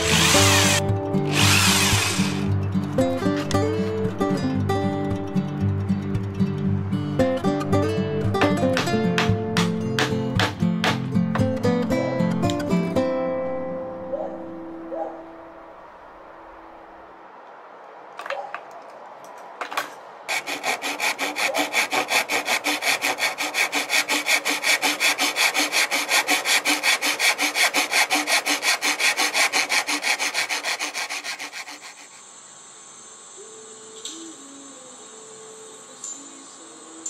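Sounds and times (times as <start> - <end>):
hand saw cutting wood: 0.0 - 2.5, 20.3 - 32.2
saw blade scraping: 0.0 - 2.5, 20.3 - 32.3.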